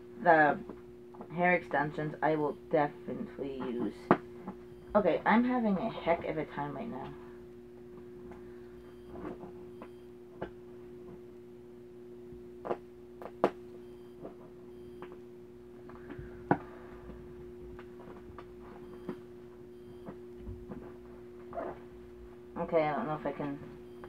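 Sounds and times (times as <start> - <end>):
low hum: 0.0 - 24.0.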